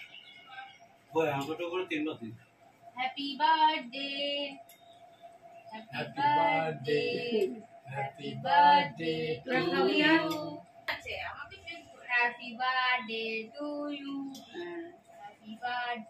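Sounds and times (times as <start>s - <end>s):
person singing in high voice: 9.5s - 10.6s.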